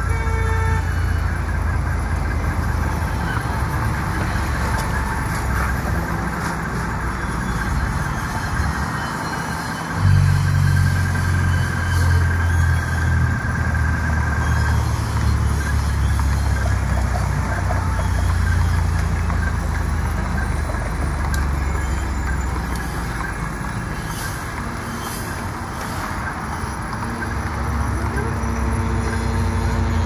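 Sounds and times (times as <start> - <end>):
traffic engine rumble: 0.0 - 30.0.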